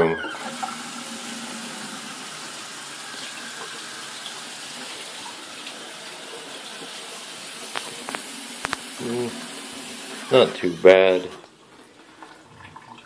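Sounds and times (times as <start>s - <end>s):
tap water splashing into sink: 0.3s - 10.4s.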